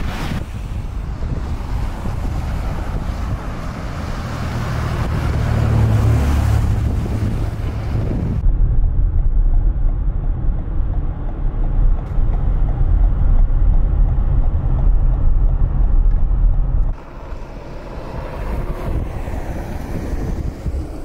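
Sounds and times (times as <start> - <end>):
car driving over snow: 0.0 - 21.0
traffic noise: 0.0 - 21.0
wind buffeting microphone: 0.0 - 21.0.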